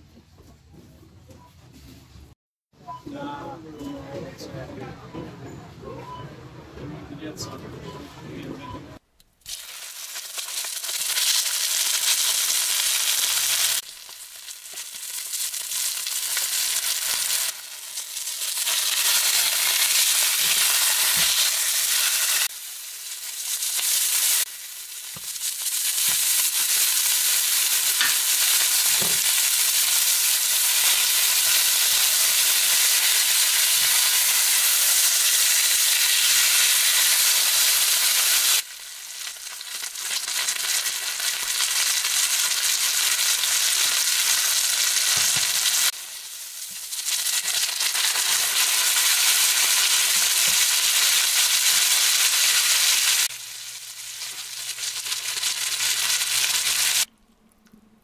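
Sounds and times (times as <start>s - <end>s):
steak sizzling in a pan: 9.4s - 57.1s.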